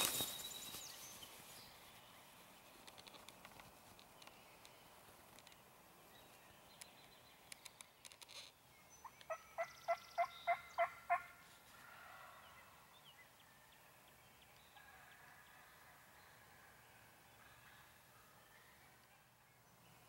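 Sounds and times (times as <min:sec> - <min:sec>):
faint clicks: 0:02.7 - 0:05.6, 0:06.7 - 0:08.5
wild turkey yelping: 0:09.3 - 0:12.3.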